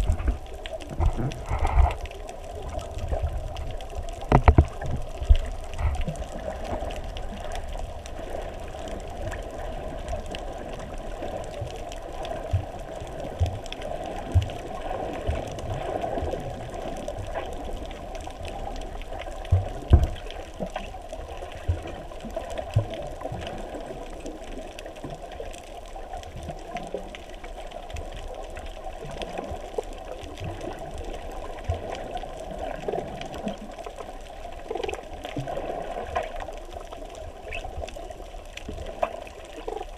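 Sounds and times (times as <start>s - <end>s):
muffled underwater rushing hiss: 0.0s - 3.6s.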